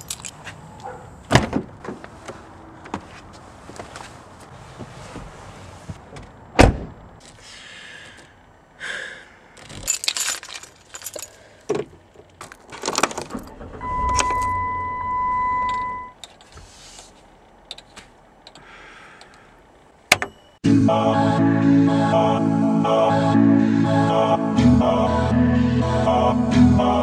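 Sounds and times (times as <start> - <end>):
keys jangling: 0.0 - 1.0, 9.6 - 11.5
car door shutting: 0.8 - 2.1, 6.1 - 7.0, 12.9 - 16.1
steady electronic beep: 13.5 - 16.2.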